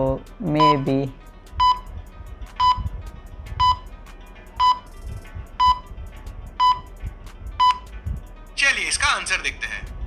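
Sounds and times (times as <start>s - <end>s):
timer beeping: 0.6s - 1.9s, 2.6s - 2.9s, 3.6s - 3.9s, 4.6s - 4.9s, 5.6s - 5.9s, 6.6s - 7.0s, 7.6s - 8.0s.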